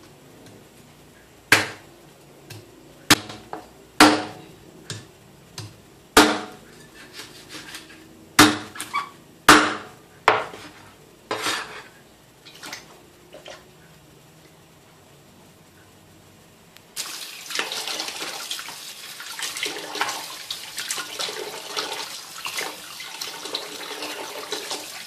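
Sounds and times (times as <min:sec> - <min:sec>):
knife chopping on cutting board: 0:01.5 - 0:01.8, 0:02.5 - 0:07.8, 0:08.4 - 0:08.8, 0:09.5 - 0:10.7.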